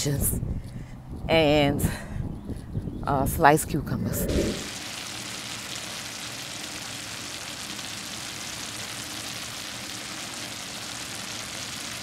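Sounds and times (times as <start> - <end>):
mushrooms sizzling in a frying pan: 4.7 - 12.0.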